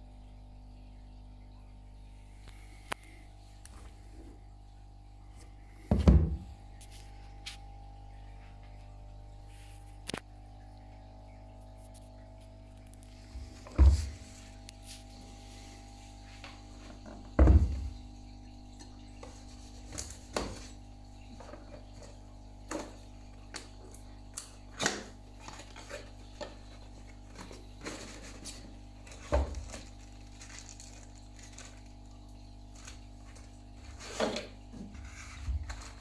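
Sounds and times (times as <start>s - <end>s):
plastic crinkling: 25.4s - 36.0s.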